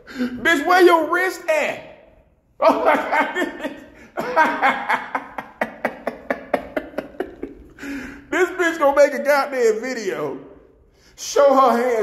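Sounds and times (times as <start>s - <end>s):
man laughing: 2.6s - 8.7s.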